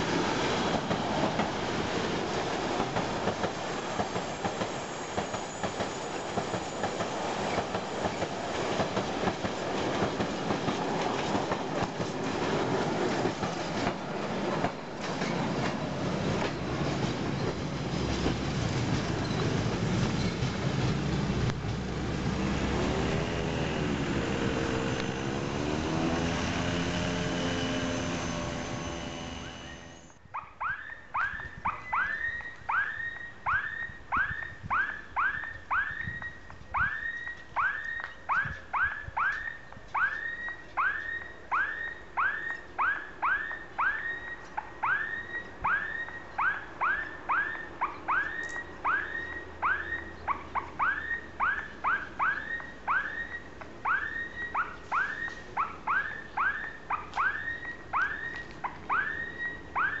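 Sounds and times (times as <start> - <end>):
level crossing warning tone: 22.0 - 60.0.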